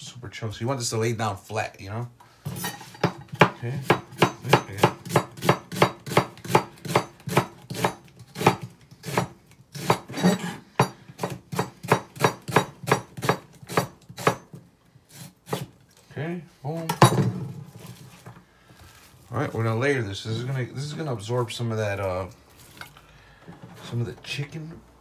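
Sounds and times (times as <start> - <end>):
knife slicing onion on cutting board: 2.8 - 15.8.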